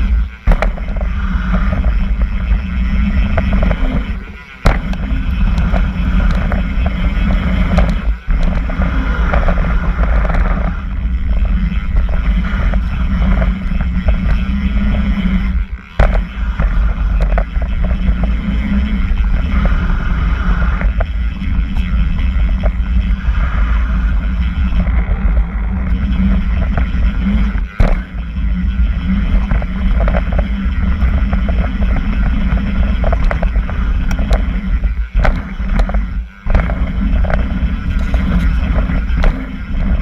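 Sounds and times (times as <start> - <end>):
sharp knock: 4.6 - 5.1.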